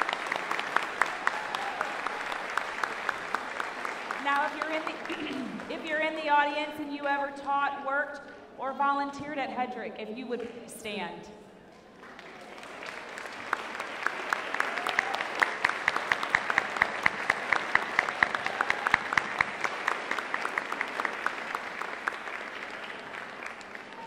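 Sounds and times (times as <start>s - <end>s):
audience applauding: 0.0s - 5.8s, 12.0s - 24.0s
sharp individual claps: 12.0s - 24.0s.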